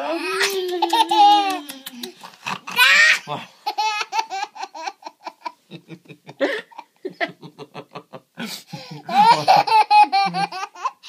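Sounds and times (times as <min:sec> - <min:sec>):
toddler laughing and squealing: 0:02.7 - 0:05.4.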